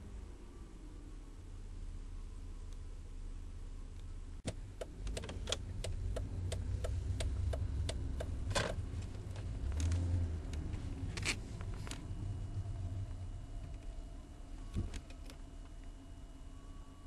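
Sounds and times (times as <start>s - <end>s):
car cabin rumble: 4.1s - 17.0s
regular sharp ticks: 4.8s - 8.4s.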